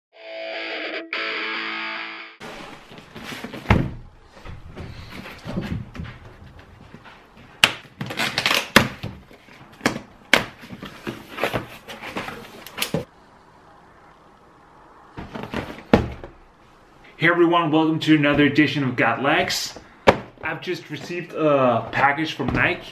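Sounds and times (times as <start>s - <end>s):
cardboard flaps scraping: 2.4s - 13.0s
packing tape tearing: 8.0s - 9.0s.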